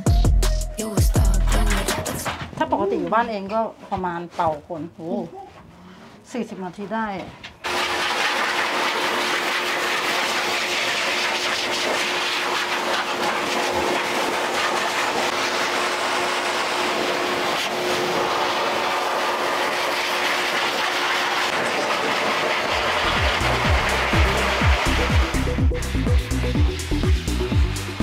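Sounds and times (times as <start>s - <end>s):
music with a beat: 0.0s - 2.4s, 23.2s - 28.0s
pet dryers blowing air: 7.6s - 28.0s
motor whine: 22.6s - 28.0s.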